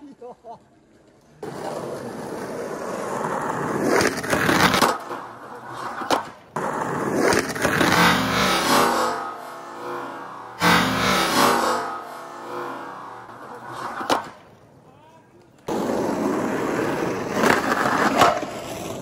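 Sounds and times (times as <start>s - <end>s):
skateboard wheels rolling: 0.6s - 19.0s
skateboard trucks grinding metal curb: 1.4s - 14.4s.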